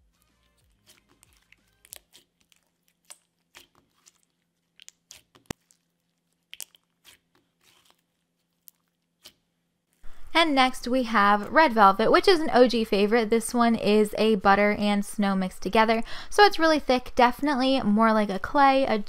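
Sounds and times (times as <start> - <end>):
slime sticky clicks and crackles: 0.5 - 9.4.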